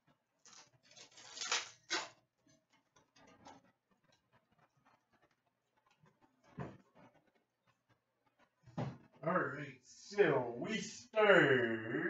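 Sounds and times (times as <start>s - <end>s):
cards clicking and rustling: 0.5s - 2.1s.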